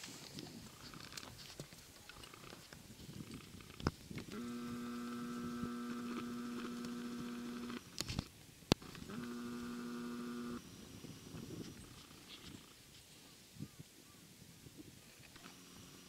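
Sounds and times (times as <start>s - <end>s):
mechanical motor hum: 3.4s - 12.7s, 15.3s - 16.0s.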